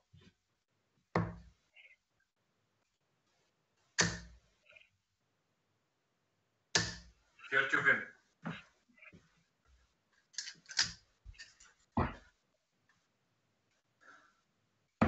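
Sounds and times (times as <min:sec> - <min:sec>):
darts thudding into dartboard: 0:01.2 - 0:01.5, 0:04.0 - 0:04.4, 0:06.8 - 0:07.1.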